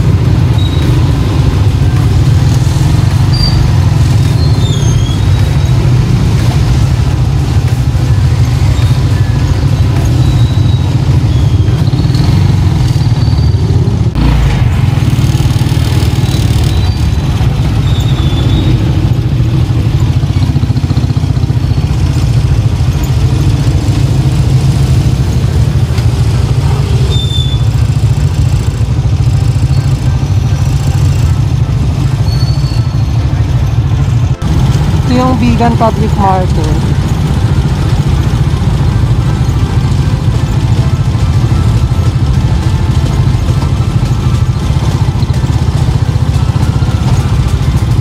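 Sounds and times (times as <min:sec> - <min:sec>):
vehicle engine and road rumble: 0:00.0 - 0:48.0.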